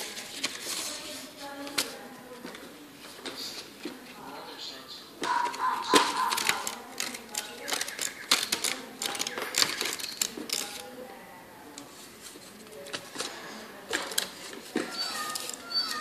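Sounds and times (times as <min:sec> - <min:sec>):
scissors snipping paper: 0:05.3 - 0:10.9.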